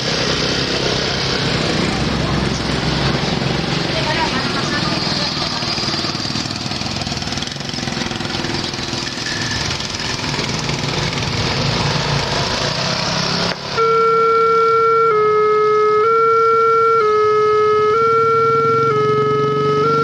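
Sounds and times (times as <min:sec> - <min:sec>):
motorcycle and truck engines: 0:00.0 - 0:20.0
level crossing alarm tone: 0:13.8 - 0:20.0.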